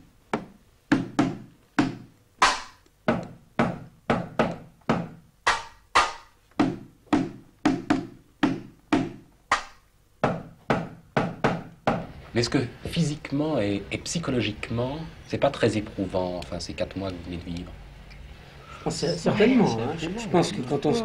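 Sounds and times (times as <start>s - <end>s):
sticks beating cardboard boxes: 0.3s - 12.1s.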